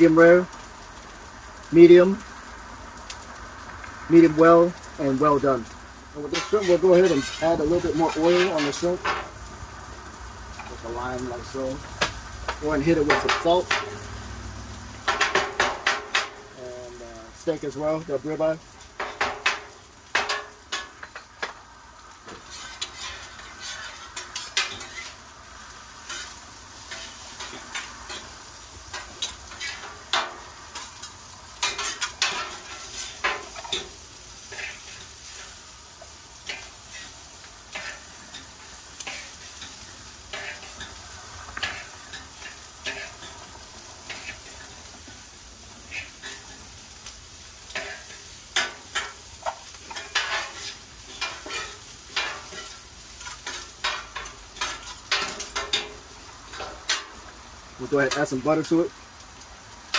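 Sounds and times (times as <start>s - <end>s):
meat sizzling on a griddle: 0.0s - 59.9s
metal spatula scraping griddle: 6.2s - 9.4s, 22.2s - 25.3s, 26.0s - 57.2s.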